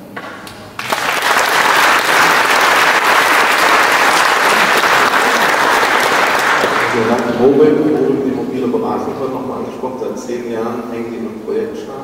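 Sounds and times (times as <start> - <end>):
audience applauding: 0.7 - 7.5.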